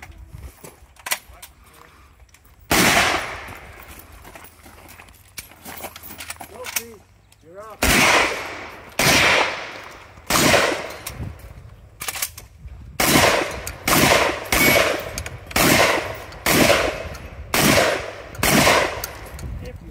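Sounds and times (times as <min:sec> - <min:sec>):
shotgun shots with echo: 0:02.7 - 0:03.6, 0:07.8 - 0:11.1, 0:13.0 - 0:19.1.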